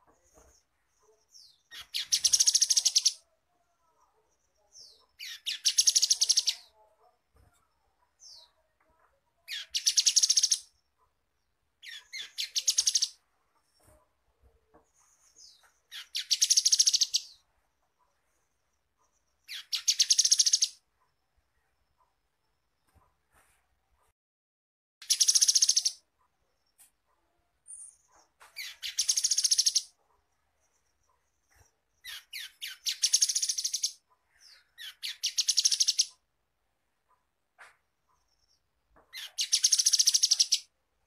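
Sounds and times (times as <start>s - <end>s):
bird singing trilled phrases: 1.2s - 3.2s, 4.7s - 6.7s, 9.5s - 10.7s, 11.8s - 13.2s, 15.4s - 17.4s, 19.3s - 20.8s, 25.0s - 26.0s, 27.7s - 30.0s, 31.5s - 36.2s, 38.4s - 40.7s.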